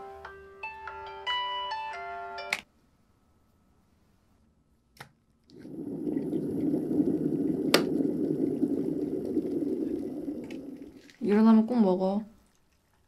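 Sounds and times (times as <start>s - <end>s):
electric kettle boiling: 5.5s - 11.7s.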